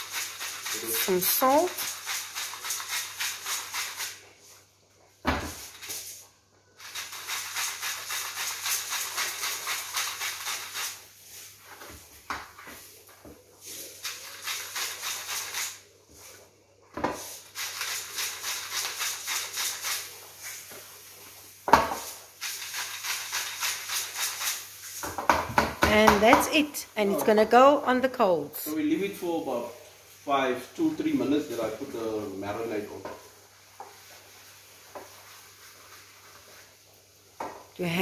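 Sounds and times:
salt grinder crunching rattle: 6.8s - 11.0s.

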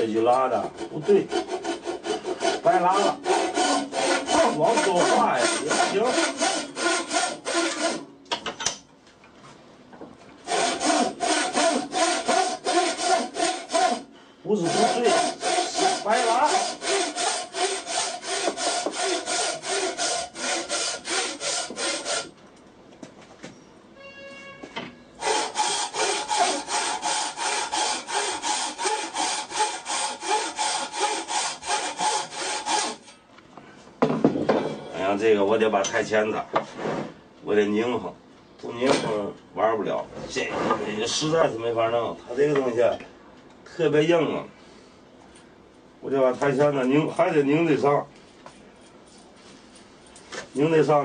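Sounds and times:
saw rasping through hard wood: 0.4s - 8.0s, 10.5s - 22.3s, 25.2s - 33.1s.

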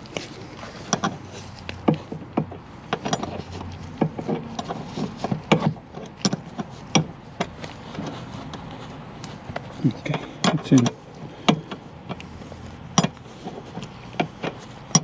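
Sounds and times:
wrench clicking and knocking: 4.0s - 7.5s, 10.1s - 12.2s, 12.9s - 13.2s, 13.8s - 15.0s.

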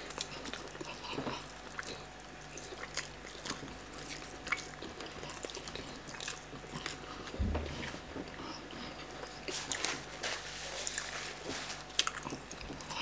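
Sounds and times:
people chewing chicken: 0.0s - 13.0s
low thump: 7.4s - 7.9s.

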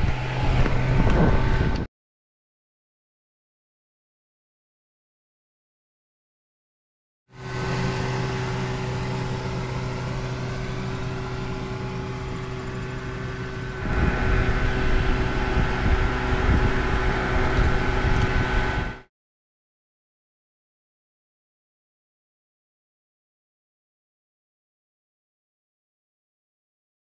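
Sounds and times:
steady machine hum: 0.0s - 1.9s, 7.3s - 19.1s
uneven low rumble: 9.0s - 19.1s.

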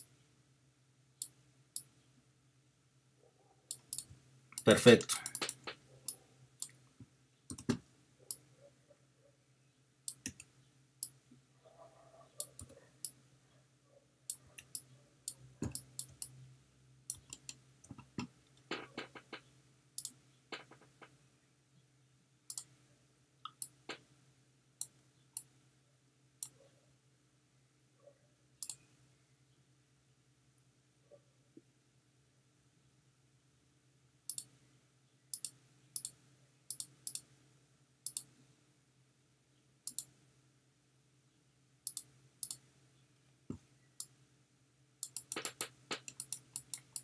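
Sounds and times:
faint low hum: 0.0s - 47.0s
computer mouse and keyboard clicks: 3.7s - 6.8s, 7.5s - 8.5s, 10.1s - 11.2s, 12.3s - 13.2s, 14.3s - 16.4s, 17.1s - 21.2s, 23.5s - 24.0s, 34.3s - 34.5s, 38.1s - 38.3s, 39.9s - 40.1s, 45.0s - 47.0s.

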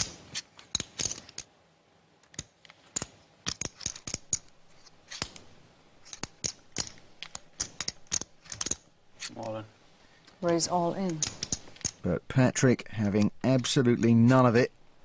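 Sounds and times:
poker chips clicking: 0.0s - 1.5s, 2.2s - 4.5s, 6.0s - 8.8s.

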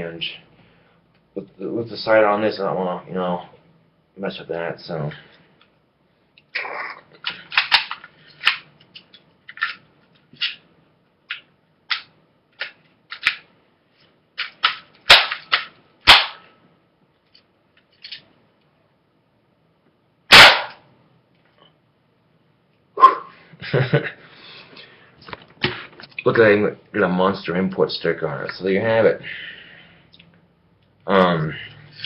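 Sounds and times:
bb gun crack: 7.2s - 8.7s, 14.4s - 16.5s, 20.3s - 20.9s
clicks and knocks of plastic parts: 7.2s - 10.6s
sharp snaps: 14.4s - 16.5s.

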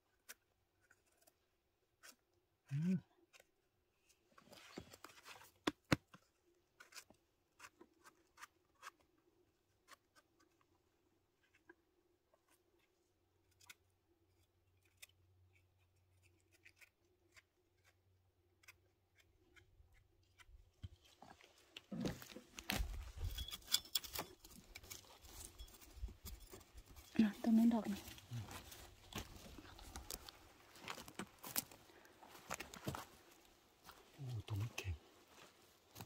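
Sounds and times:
crunching and rustling: 20.8s - 34.3s.

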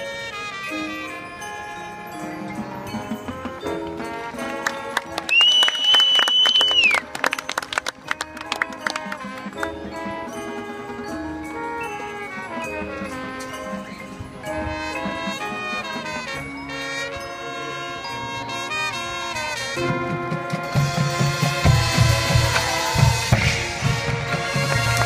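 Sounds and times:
marimbas and percussion: 0.0s - 5.5s, 6.8s - 25.0s
marching band brass chords: 0.0s - 25.0s.

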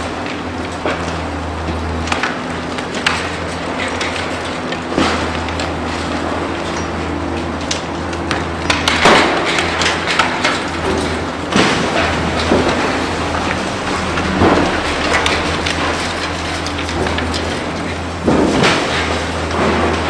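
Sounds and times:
demolition machinery droning: 0.0s - 20.0s
concrete crashing and clattering: 8.7s - 20.0s.

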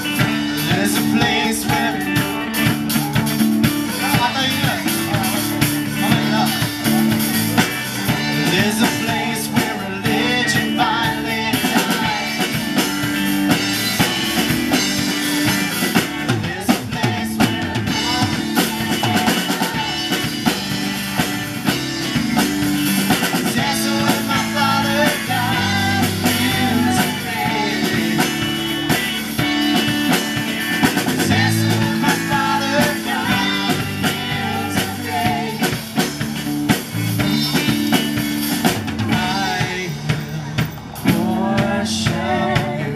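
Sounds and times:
drum kit: 0.0s - 42.9s
electric guitars: 0.0s - 42.9s
keyboard: 0.0s - 42.9s
women singing: 0.6s - 2.5s, 8.4s - 13.2s, 16.0s - 21.4s, 23.2s - 29.0s, 31.1s - 36.1s, 41.0s - 42.9s.

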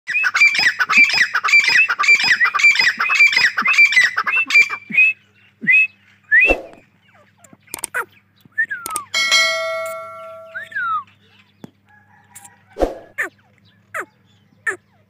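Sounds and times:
francolin calling shrill notes: 8.9s - 11.0s.

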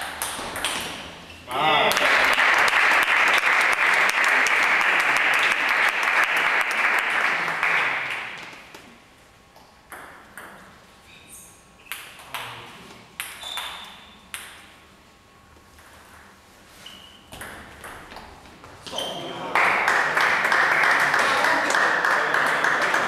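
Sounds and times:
table tennis ball bouncing: 0.0s - 1.0s, 9.5s - 10.8s, 11.9s - 12.5s, 13.2s - 14.8s, 17.3s - 18.4s
spectators clapping: 1.8s - 8.8s, 19.4s - 23.0s.

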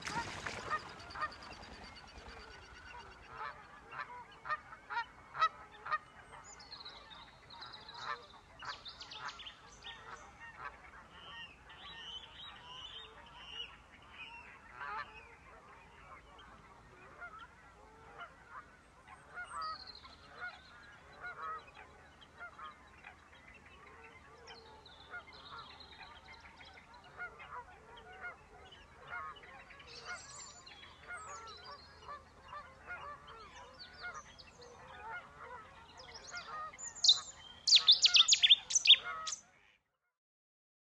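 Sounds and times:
birds chattering: 36.1s - 39.4s
high clear bird calls: 36.8s - 39.4s.

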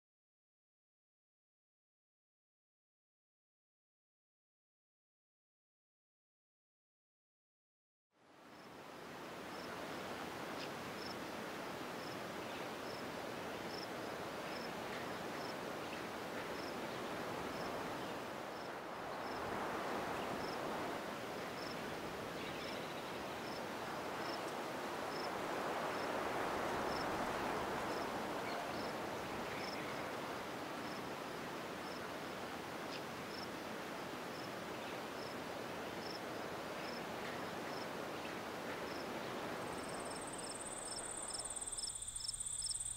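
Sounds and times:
cricket chirping: 18.5s - 21.8s, 23.4s - 30.2s, 31.8s - 32.0s, 36.0s - 36.2s, 38.9s - 42.9s.

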